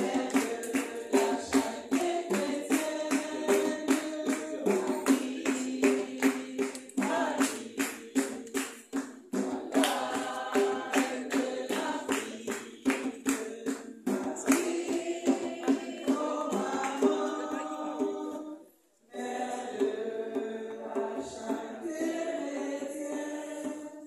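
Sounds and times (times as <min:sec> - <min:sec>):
percussion beat: 0:00.0 - 0:18.6, 0:19.2 - 0:24.0
choir singing a hymn: 0:00.0 - 0:24.0.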